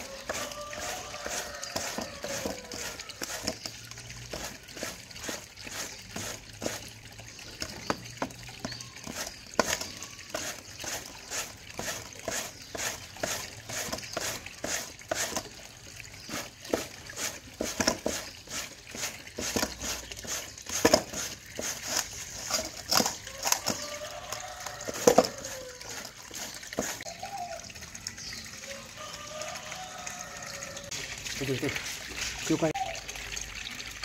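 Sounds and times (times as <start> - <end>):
root scraping on metal grater: 0.0 - 3.7, 9.1 - 15.5, 16.2 - 27.1.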